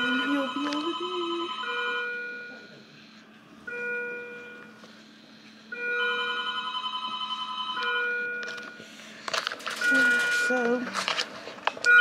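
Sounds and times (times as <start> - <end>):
electronic telephone ringing: 0.0 - 2.5, 5.8 - 8.8, 9.8 - 10.8.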